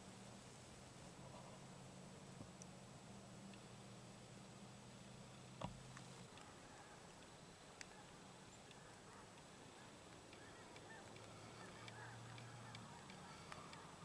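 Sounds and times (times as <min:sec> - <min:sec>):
faint distant bird calls: 0:00.0 - 0:14.0
light clicks: 0:05.6 - 0:14.0.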